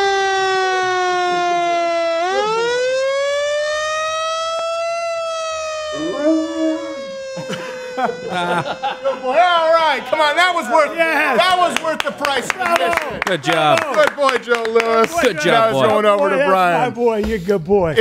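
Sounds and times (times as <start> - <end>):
fire engine siren wailing: 0.0 - 12.0
dog howling: 5.9 - 7.2.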